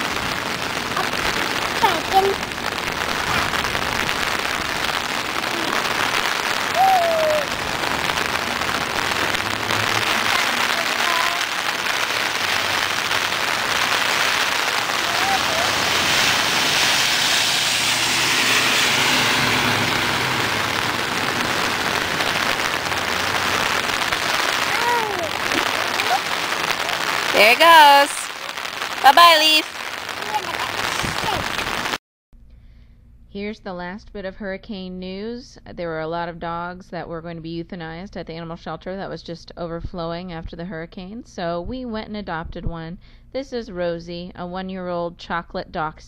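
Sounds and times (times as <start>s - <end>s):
rain falling on pavement: 0.0s - 32.0s
small child vocalizing: 5.4s - 5.9s, 6.7s - 7.6s, 10.0s - 11.5s, 15.0s - 15.8s, 24.6s - 26.3s.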